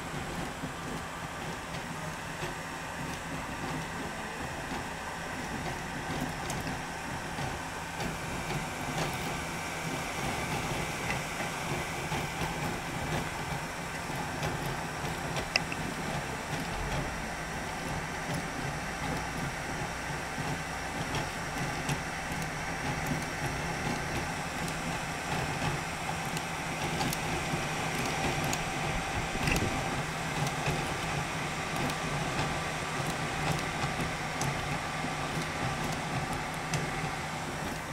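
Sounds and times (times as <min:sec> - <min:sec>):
three d printer whirring: 0:00.0 - 0:37.9
faint print head clicks: 0:10.2 - 0:37.9.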